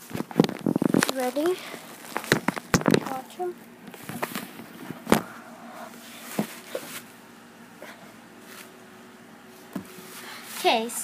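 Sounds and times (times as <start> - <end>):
phone rustling: 0.0 - 5.3.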